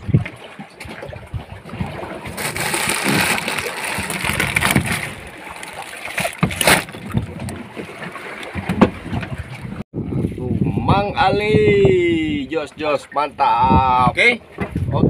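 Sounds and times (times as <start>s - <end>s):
sea noise: 0.0s - 14.8s
wind: 0.0s - 15.0s
fish shifting in plastic cooler: 1.6s - 9.4s.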